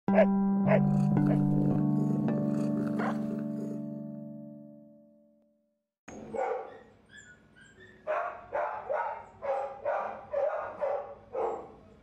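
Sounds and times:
dog barking: 0:00.1 - 0:01.4, 0:03.0 - 0:03.3, 0:06.2 - 0:06.9, 0:07.7 - 0:11.9.

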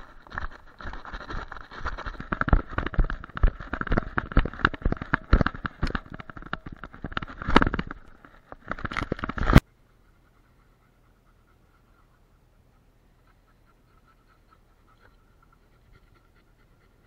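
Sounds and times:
camera knocking and crackling: 0:00.0 - 0:09.6.

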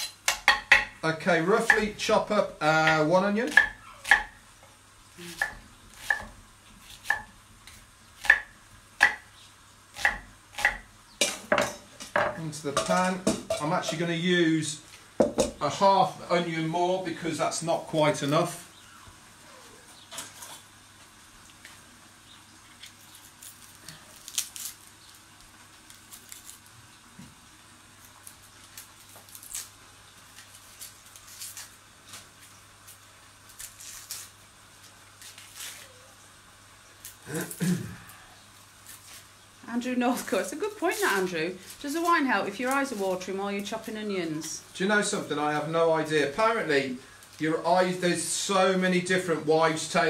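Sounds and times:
knife chopping on wooden board: 0:01.6 - 0:01.9, 0:02.8 - 0:04.4, 0:05.4 - 0:07.3, 0:08.2 - 0:09.3, 0:10.0 - 0:11.8
onion skin crackling as peeled: 0:19.5 - 0:44.8.

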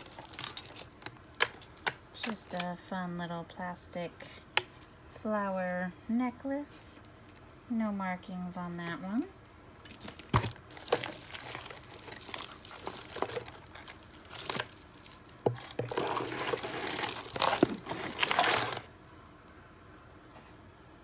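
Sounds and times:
jewelry rustling and clinking: 0:00.0 - 0:02.9, 0:08.9 - 0:19.0.

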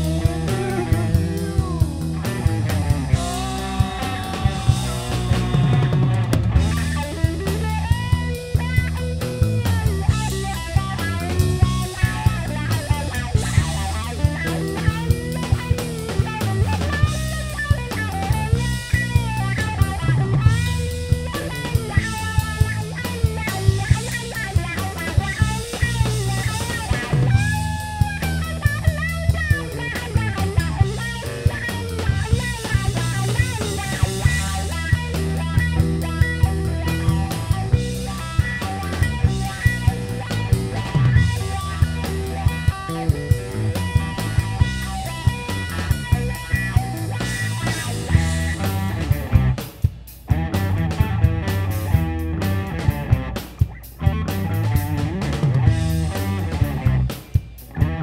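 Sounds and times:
drum kit: 0:00.0 - 0:58.0
electric bass: 0:00.0 - 0:58.0
electric guitar: 0:00.0 - 0:58.0.

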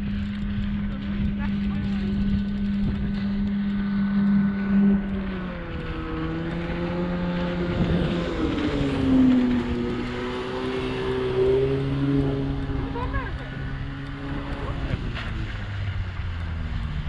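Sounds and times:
passing engine humming: 0:00.0 - 0:17.0.

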